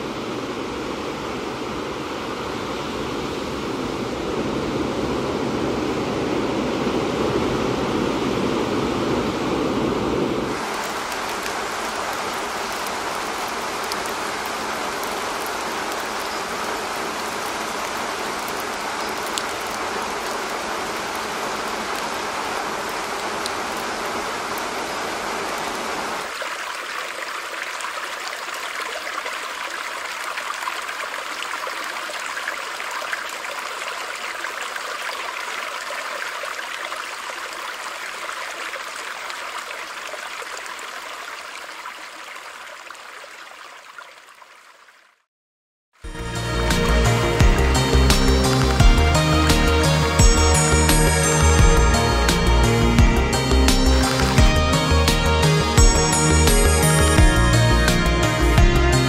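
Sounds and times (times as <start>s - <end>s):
ocean surf noise: 0.0s - 26.4s, 46.0s - 59.0s
rain hiss with patter: 0.0s - 45.3s, 46.0s - 59.0s
trickling stream water: 0.0s - 45.3s, 45.9s - 59.0s.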